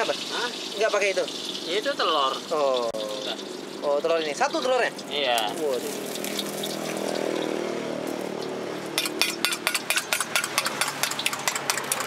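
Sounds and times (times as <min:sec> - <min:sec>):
spoon clinking in metal bowl: 0:09.0 - 0:12.0.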